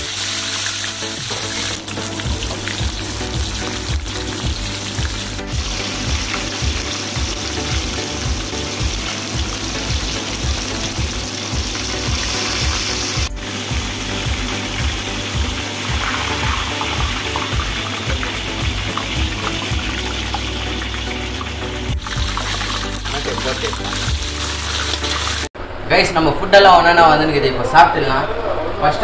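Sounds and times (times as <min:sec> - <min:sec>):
background music with beat: 0:00.0 - 0:25.5
fish sizzling in hot oil: 0:00.0 - 0:25.5.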